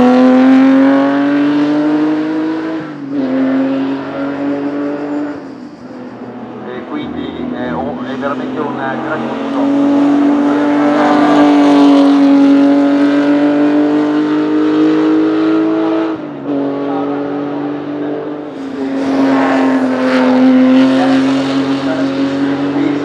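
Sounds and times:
racing car engine at high revs: 0.0 - 23.0.

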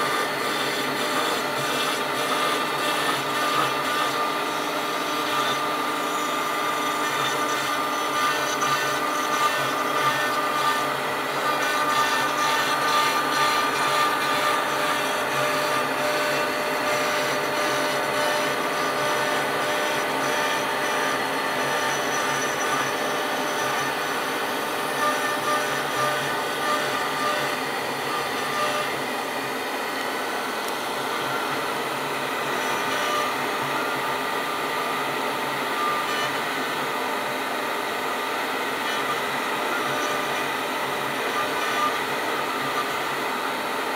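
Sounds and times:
bit cutting into wood: 0.0 - 34.8
router spindle whining: 0.0 - 43.9.

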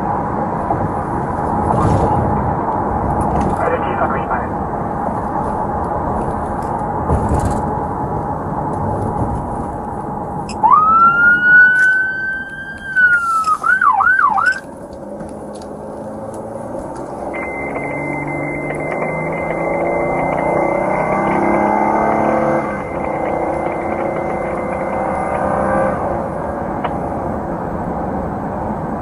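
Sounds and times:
engine and road noise drone: 0.0 - 29.0
police siren wailing and yelping: 10.5 - 14.7, 17.4 - 26.0.

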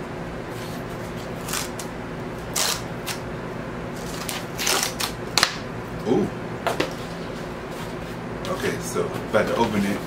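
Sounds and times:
cardboard tearing: 1.3 - 1.9, 2.5 - 3.2, 4.0 - 5.2.

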